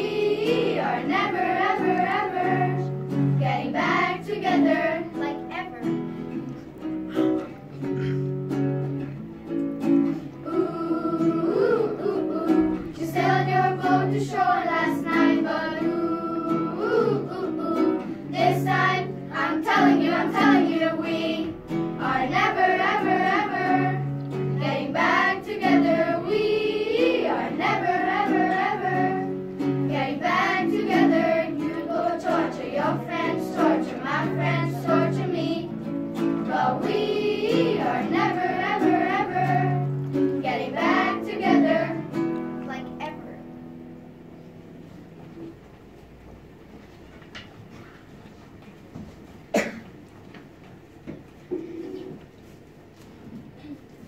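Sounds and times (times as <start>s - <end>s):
children singing in unison: 0.0s - 5.2s, 10.4s - 42.2s.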